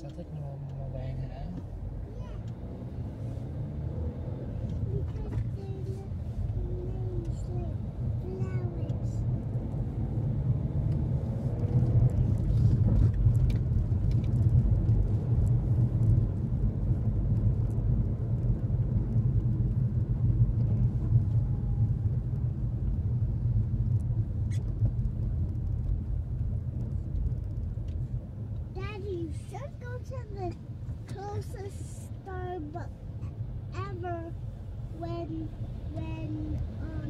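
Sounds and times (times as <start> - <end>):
car engine and road rumble: 0.0 - 37.0.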